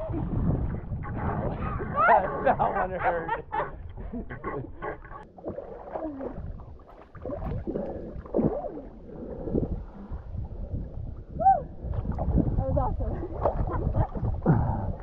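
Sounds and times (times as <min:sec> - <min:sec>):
wind rumble on microphone: 0:00.0 - 0:05.3, 0:06.0 - 0:15.0
water sloshing and splashing: 0:00.0 - 0:15.0.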